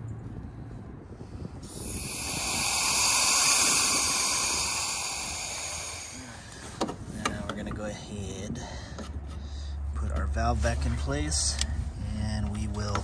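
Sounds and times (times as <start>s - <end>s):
gas hissing from a pipe: 1.6s - 6.9s.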